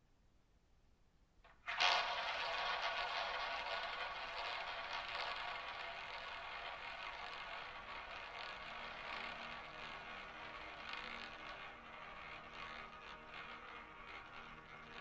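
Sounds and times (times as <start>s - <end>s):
roulette ball rolling whirring rattle: 1.5s - 15.0s.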